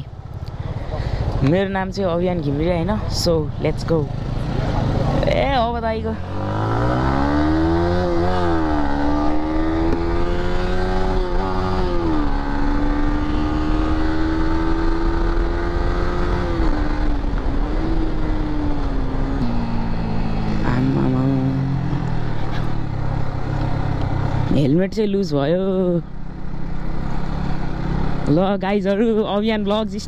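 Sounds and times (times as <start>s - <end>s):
motorcycle engine pulling away: 6.2s - 24.6s, 26.1s - 28.4s.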